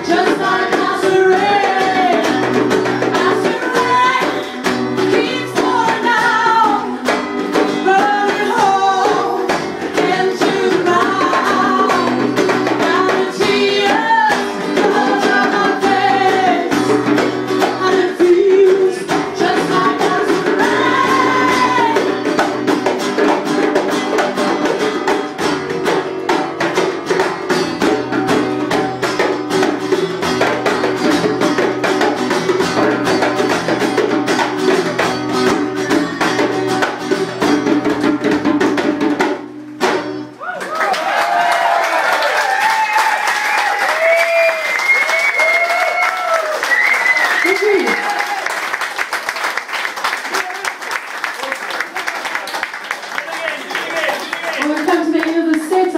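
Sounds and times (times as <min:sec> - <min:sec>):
woman singing: 0:00.0 - 0:22.3, 0:54.6 - 0:55.9
hand drums: 0:00.0 - 0:40.3
acoustic guitar strumming: 0:00.0 - 0:40.4.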